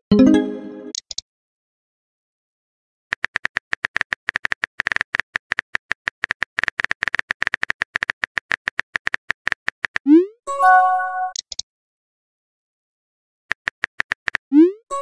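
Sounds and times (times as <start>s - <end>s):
phone keyboard typing clicks: 3.1s - 10.1s, 13.5s - 14.4s.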